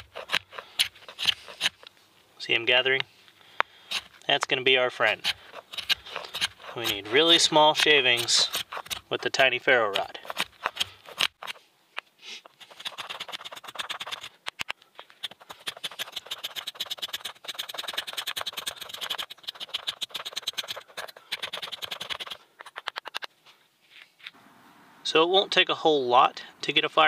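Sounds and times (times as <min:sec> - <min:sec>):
knife scraping wood shavings: 0:00.0 - 0:01.9, 0:03.8 - 0:04.3, 0:04.9 - 0:11.6, 0:12.2 - 0:23.3.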